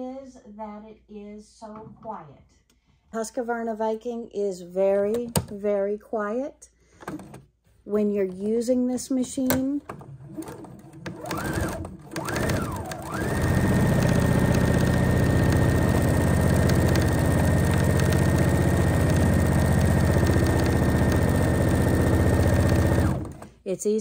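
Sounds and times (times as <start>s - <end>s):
sewing machine motor whine: 10.2s - 23.5s.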